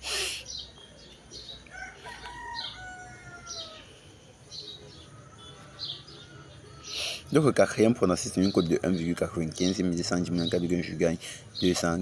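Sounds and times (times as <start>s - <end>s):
small birds chirping: 0.0s - 12.0s
rooster crowing: 1.7s - 4.0s.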